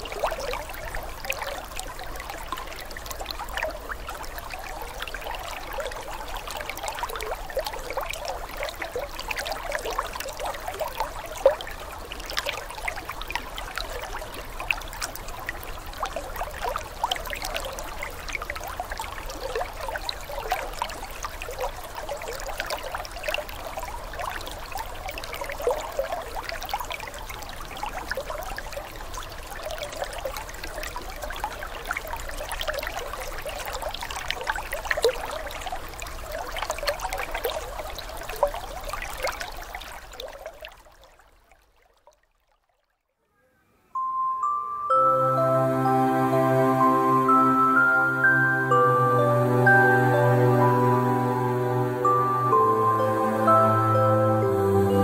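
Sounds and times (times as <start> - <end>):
aquarium water trickling and splashing: 0.0 - 43.1.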